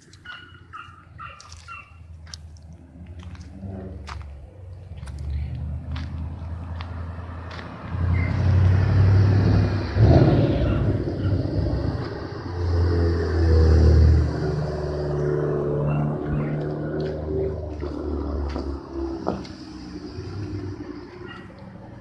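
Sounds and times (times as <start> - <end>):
car engines revving: 0.0 - 22.0.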